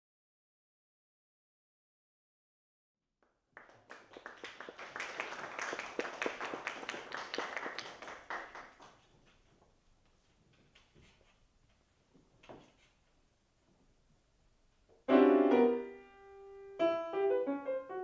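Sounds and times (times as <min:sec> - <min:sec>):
audience applauding: 0:03.2 - 0:09.2.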